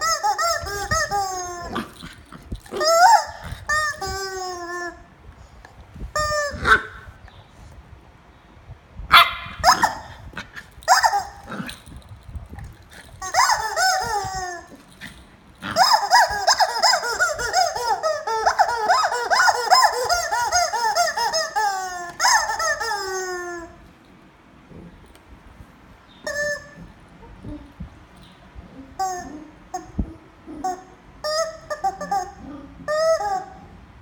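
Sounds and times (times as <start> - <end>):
squeaky toy squawking: 0.0 - 2.0, 2.6 - 5.1, 6.1 - 7.1, 9.2 - 10.1, 10.8 - 11.7, 13.0 - 23.9, 26.2 - 26.9, 28.8 - 33.7
puppy barking and yapping: 9.1 - 12.0, 13.0 - 23.6.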